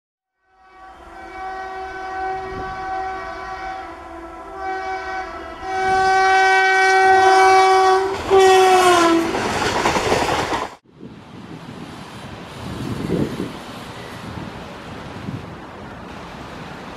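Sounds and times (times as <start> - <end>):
train horn blasts: 0.4 - 9.5
train coaches rushing and clattering: 7.2 - 16.9.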